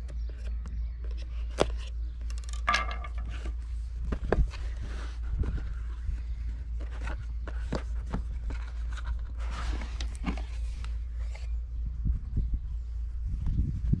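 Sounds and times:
cardboard rustling: 0:02.7 - 0:11.6
steady low rumble: 0:03.1 - 0:14.0.

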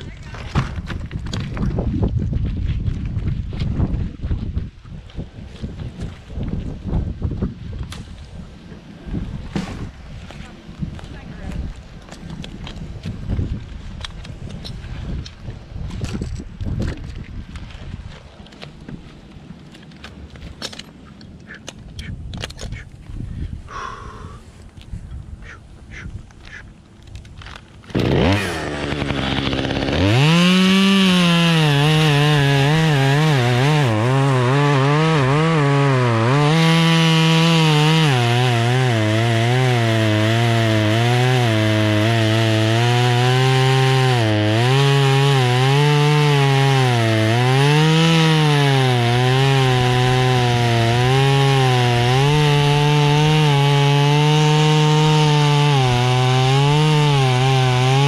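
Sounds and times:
chainsaw cutting wood: 0:09.4 - 0:22.9, 0:25.4 - 0:58.0.

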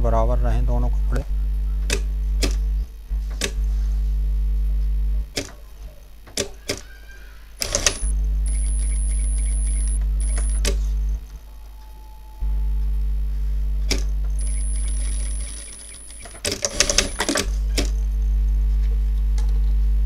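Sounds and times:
electrical hum: 0:00.0 - 0:20.0
faint high whine: 0:00.0 - 0:20.0
sewing machine clicks: 0:07.6 - 0:08.1, 0:13.9 - 0:17.9.

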